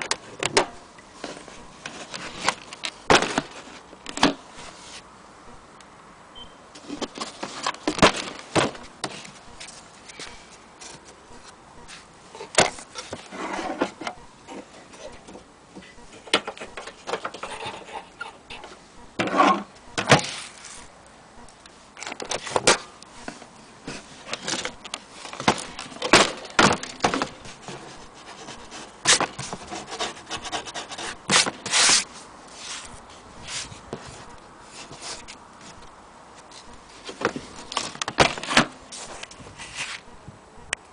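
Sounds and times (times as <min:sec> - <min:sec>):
scraping on a case: 0:12.4 - 0:15.4.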